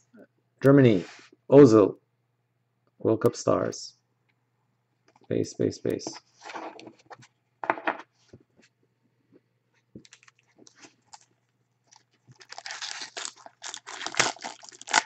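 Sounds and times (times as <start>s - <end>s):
foil wrapper crinkling: 10.0s - 15.0s.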